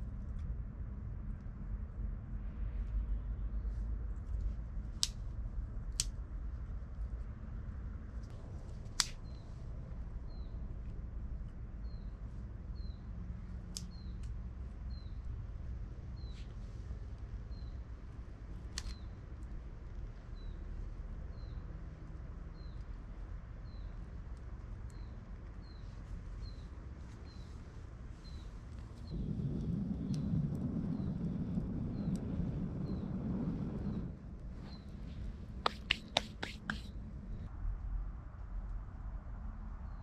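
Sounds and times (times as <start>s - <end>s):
wood fire snapping: 8.9s - 9.2s, 29.1s - 34.0s.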